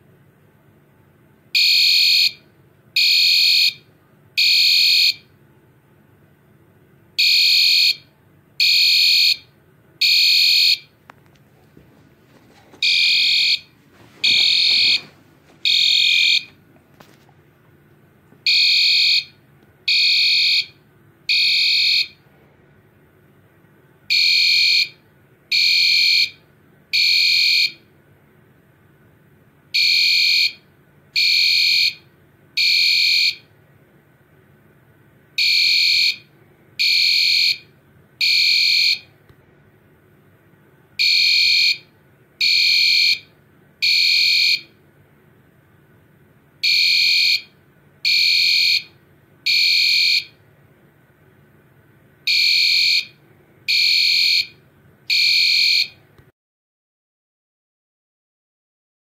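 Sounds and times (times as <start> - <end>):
fire alarm horn beeping: 1.6 - 5.3, 7.2 - 11.0, 12.8 - 16.6, 18.4 - 22.2, 24.1 - 27.9, 29.7 - 33.5, 35.4 - 39.1, 41.0 - 44.8, 46.6 - 50.4, 52.3 - 56.0.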